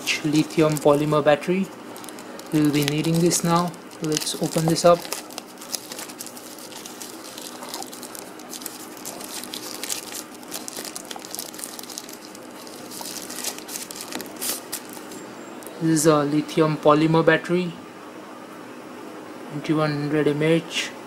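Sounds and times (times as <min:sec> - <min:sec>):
plastic wrapping crinkling and tearing: 0:00.0 - 0:01.2, 0:01.8 - 0:15.2.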